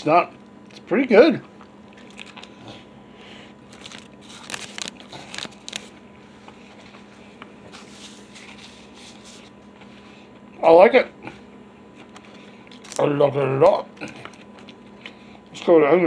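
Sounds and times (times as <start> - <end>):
person chewing: 1.4 - 6.6, 11.2 - 13.0, 13.9 - 15.5
paper wrapper crinkling: 3.6 - 6.1, 12.7 - 13.2.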